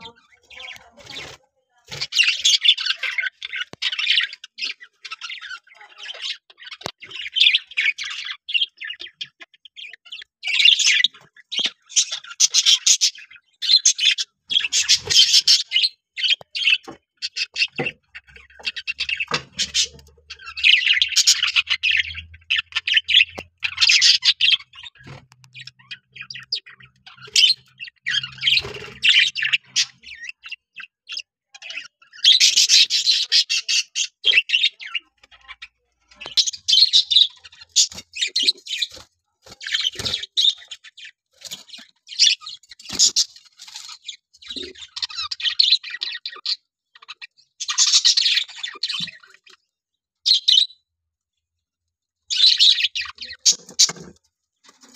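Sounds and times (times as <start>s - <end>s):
budgerigars chirping and chattering: 0.0s - 50.8s, 52.3s - 54.9s
budgerigar squawks: 13.8s - 17.8s.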